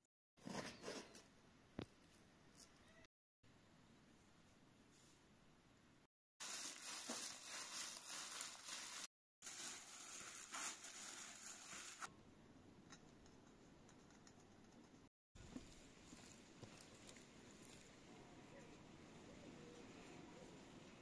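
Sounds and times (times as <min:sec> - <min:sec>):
rustling crinkling: 0:06.4 - 0:12.1.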